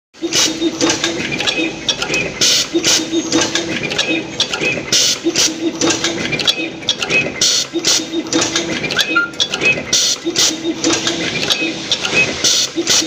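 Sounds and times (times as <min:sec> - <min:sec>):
machine clicking and clattering: 0:00.2 - 0:13.0.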